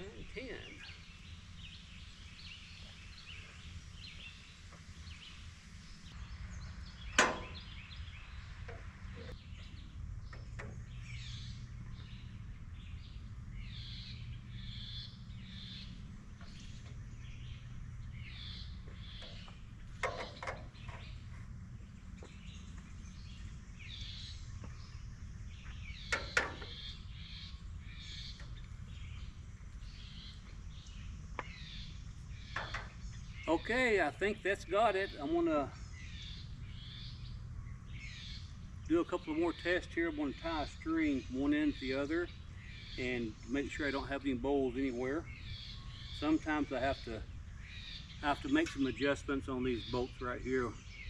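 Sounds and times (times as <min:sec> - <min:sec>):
birds chirping: 0:00.0 - 0:51.0
low steady rumble: 0:00.0 - 0:51.0.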